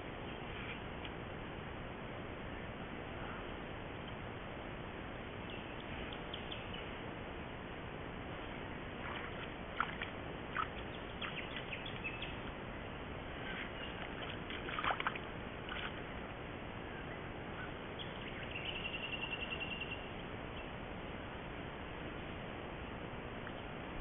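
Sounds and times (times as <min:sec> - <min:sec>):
mud and water splashing: 0:08.9 - 0:12.6, 0:13.2 - 0:16.3.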